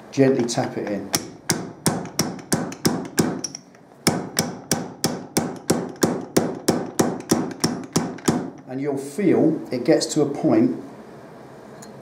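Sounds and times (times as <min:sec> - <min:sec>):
metal seal driver tapping: 0:00.4 - 0:08.7.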